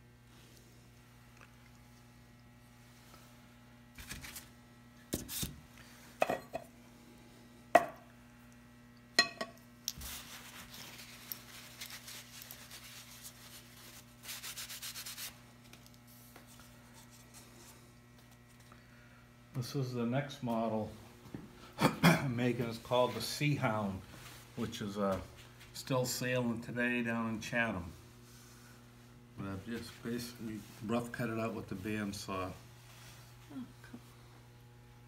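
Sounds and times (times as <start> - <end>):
paper towel rubbing: 10.1 - 15.4.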